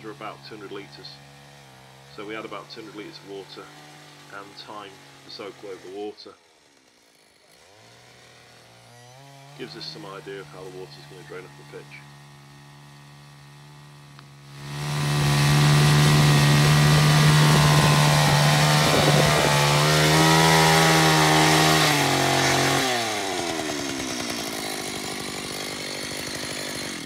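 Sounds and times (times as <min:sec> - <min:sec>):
earth drill engine running: 0:06.7 - 0:27.0.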